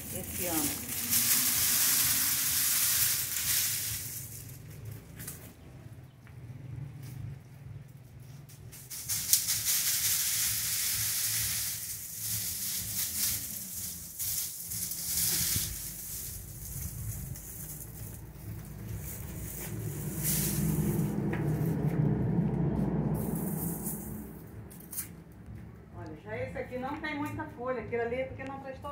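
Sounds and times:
dry plant stalks rustling and rattling: 0.0 - 6.0, 7.8 - 22.0
low rumble: 11.5 - 28.9.

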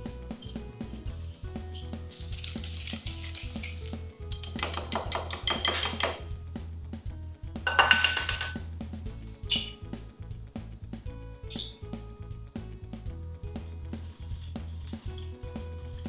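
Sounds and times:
soft background music: 0.0 - 16.0
utensil stirring batter in glass bowl: 1.2 - 6.3.

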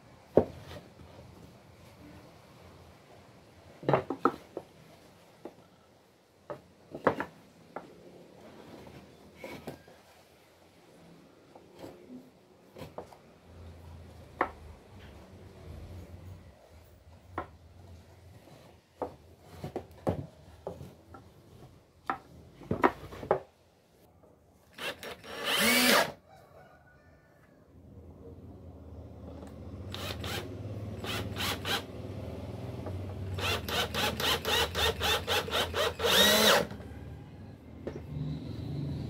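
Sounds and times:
cordless drill running: 24.8 - 26.2, 29.9 - 31.9, 33.4 - 36.8.

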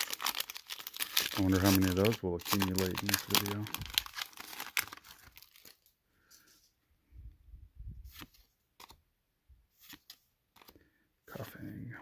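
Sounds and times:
trading cards clicking and rustling: 0.1 - 5.8, 9.8 - 10.8.

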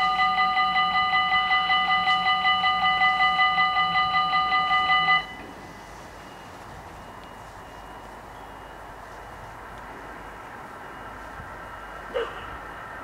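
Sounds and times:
electronic level crossing bells: 0.0 - 5.4.

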